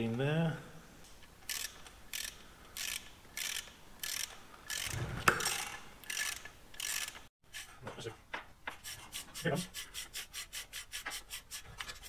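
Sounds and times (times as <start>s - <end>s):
socket ratchet clicking: 1.4s - 7.3s.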